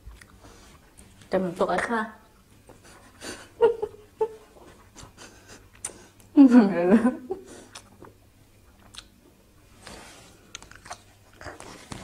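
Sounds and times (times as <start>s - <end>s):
person chewing food: 0.0s - 1.2s, 7.5s - 12.0s
wet clicks and light crunches: 7.7s - 9.2s, 10.5s - 12.0s.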